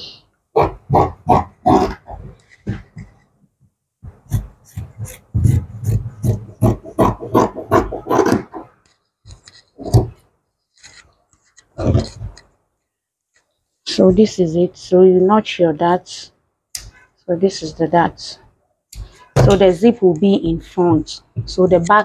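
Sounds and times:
scissors cutting fabric: 4.2 - 8.7.

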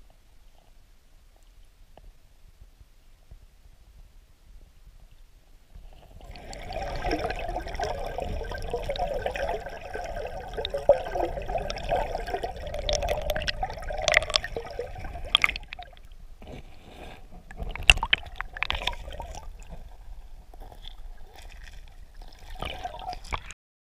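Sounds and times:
underwater river gurgling: 5.8 - 23.6.

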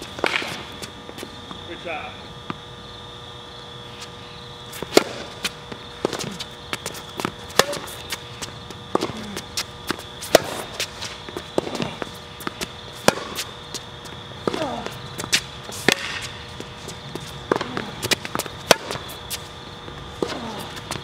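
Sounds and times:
footsteps on hard court: 0.0 - 1.6, 3.9 - 21.0
tennis ball bouncing: 0.0 - 1.6, 4.8 - 21.0
rackets striking tennis ball: 0.0 - 1.8, 4.8 - 21.0.

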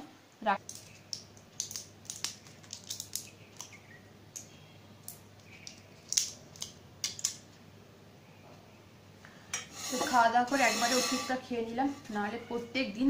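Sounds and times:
plastic packet crinkling: 0.6 - 3.8.

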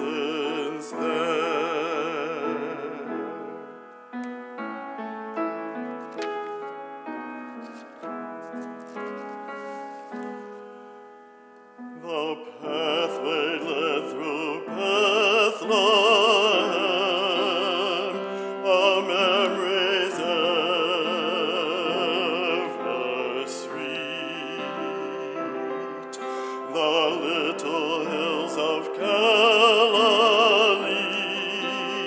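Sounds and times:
man singing operatically: 0.0 - 3.8, 12.0 - 32.0
piano: 0.0 - 32.0.

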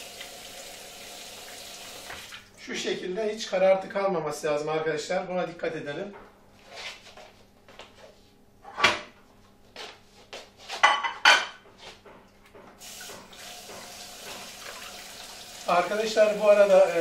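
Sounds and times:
sharp knocks and clatters: 10.8 - 14.5
tap running into sink: 12.8 - 15.5.

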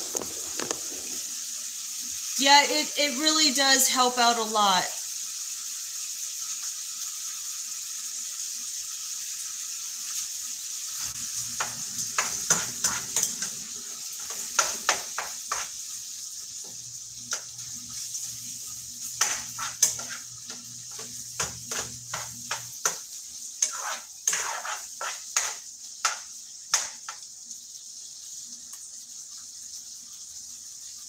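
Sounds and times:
meat sizzling in a frying pan: 0.0 - 31.0
utensil scraping a pan: 11.0 - 13.6, 14.2 - 15.8, 19.1 - 23.0, 23.6 - 26.9.

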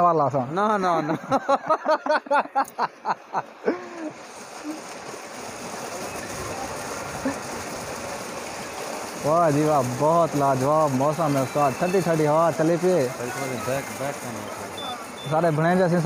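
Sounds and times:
man laughing: 0.8 - 4.8
water pouring into tank: 3.8 - 16.0.

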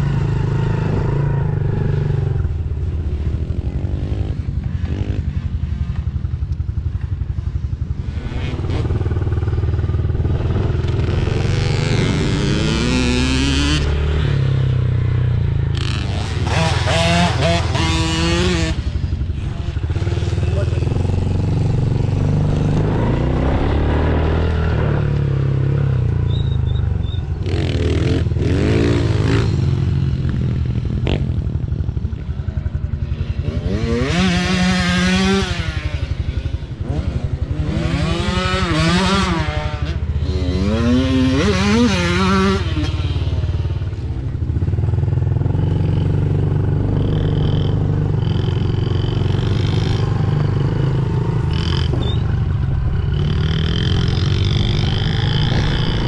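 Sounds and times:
dirt bike engines droning: 0.0 - 56.0
engine revving up: 15.7 - 18.8, 46.8 - 56.0.

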